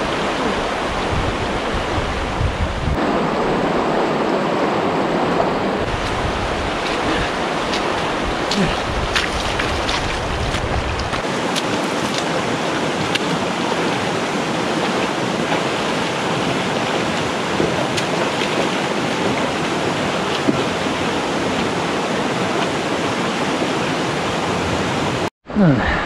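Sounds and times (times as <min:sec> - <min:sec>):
low wind rumble on microphone: 0:00.0 - 0:23.7
rocky stream rushing: 0:00.0 - 0:25.3
splashes of wading: 0:05.2 - 0:23.9.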